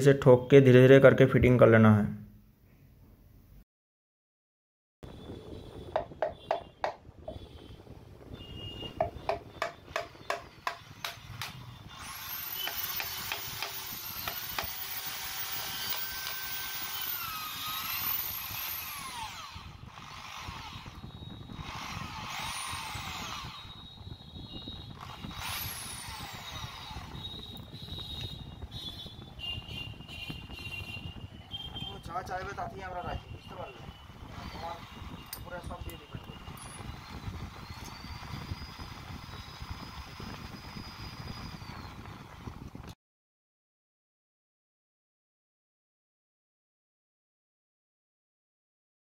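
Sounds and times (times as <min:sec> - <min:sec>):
wood tapping on metal parts: 0:06.0 - 0:07.4, 0:09.0 - 0:11.6, 0:12.6 - 0:14.8
power tool whirring: 0:09.0 - 0:29.1, 0:34.0 - 0:42.4.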